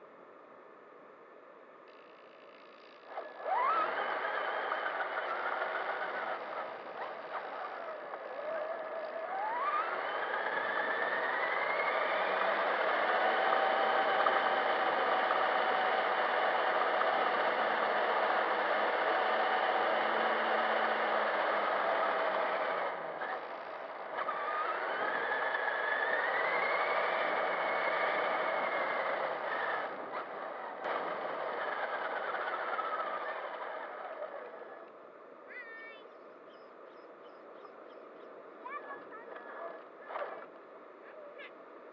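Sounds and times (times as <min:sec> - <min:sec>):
toy truck motor whining: 0:02.0 - 0:35.0.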